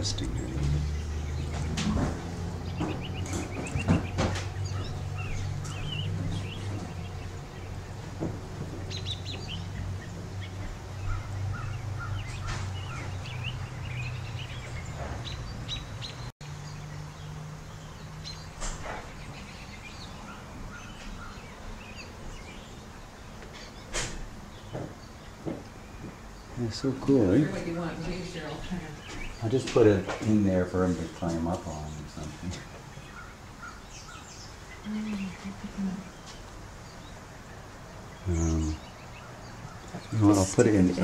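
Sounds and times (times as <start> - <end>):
small birds chirping: 0.0 - 41.0.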